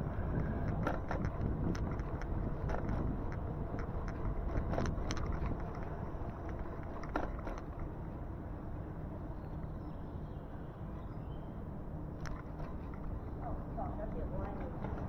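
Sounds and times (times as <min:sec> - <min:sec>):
wind and road noise: 0:00.0 - 0:15.0
sharp clicks and ticks: 0:00.6 - 0:07.7.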